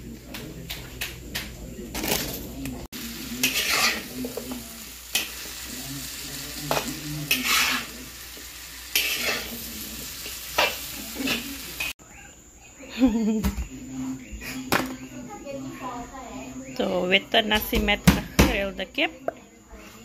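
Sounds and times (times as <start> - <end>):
vegetables sizzling in a wok: 2.9 - 12.0
metal spoon scraping wok: 3.3 - 5.5, 7.2 - 8.0, 8.9 - 11.9.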